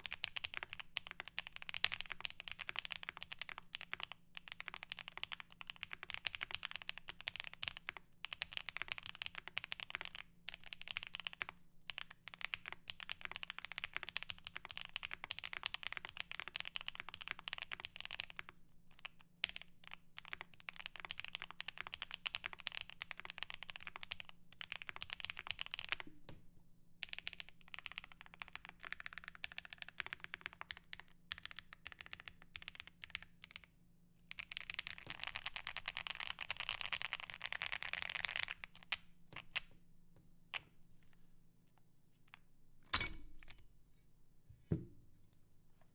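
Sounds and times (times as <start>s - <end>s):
keyboard typing: 0.0s - 18.4s.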